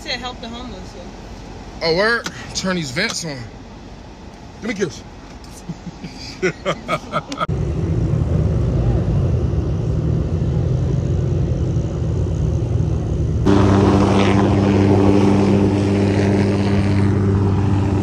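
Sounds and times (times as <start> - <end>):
helicopter hovering: 6.9 - 18.0
low rumble: 7.5 - 18.0.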